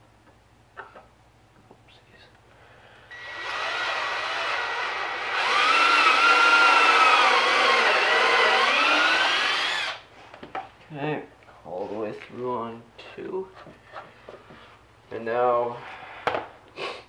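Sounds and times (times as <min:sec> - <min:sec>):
cordless drill boring: 0:03.1 - 0:10.0.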